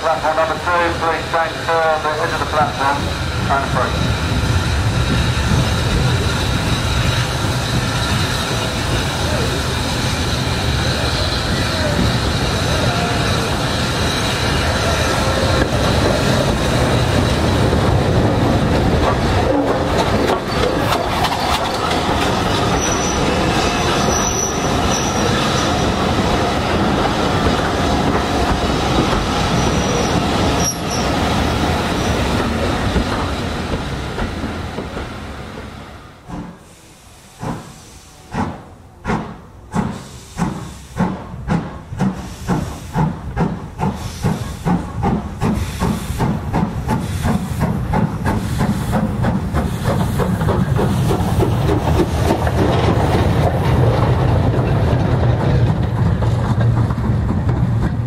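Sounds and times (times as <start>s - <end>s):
train wheel and rail noise: 0.0s - 58.0s
steam locomotive exhaust beats: 36.3s - 58.0s.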